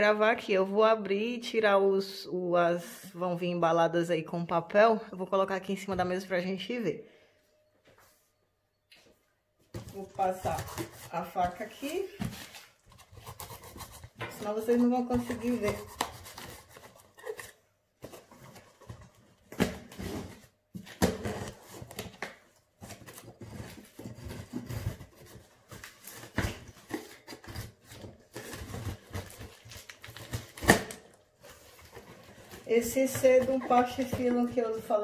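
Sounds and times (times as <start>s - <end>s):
knife cutting packing tape: 15.2s - 17.6s.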